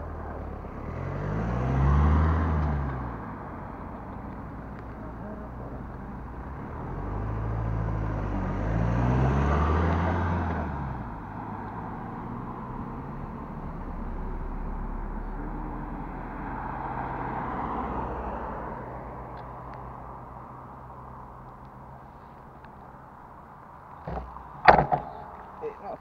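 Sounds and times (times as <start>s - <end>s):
cars passing on a road: 0.0s - 26.0s.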